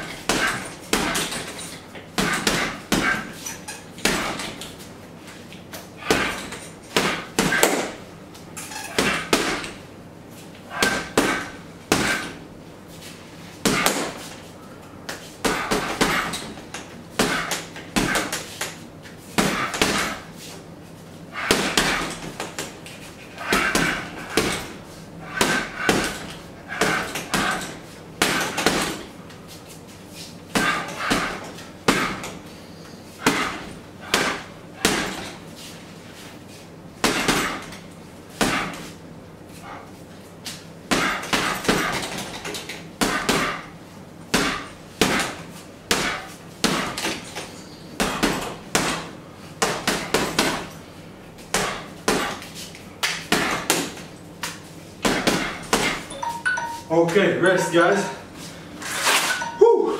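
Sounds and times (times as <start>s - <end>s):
gloves thudding on punching bag: 0.0s - 1.6s, 2.2s - 3.4s, 4.0s - 4.7s, 6.0s - 8.0s, 9.0s - 9.8s, 10.8s - 12.4s, 13.6s - 14.3s, 15.1s - 18.5s, 19.4s - 20.3s, 21.4s - 22.8s, 23.4s - 29.1s, 30.5s - 32.4s, 33.2s - 35.4s, 37.0s - 37.8s, 38.4s - 38.9s, 40.9s - 43.7s, 44.3s - 47.3s, 48.0s - 50.8s, 51.4s - 54.1s, 55.0s - 56.1s.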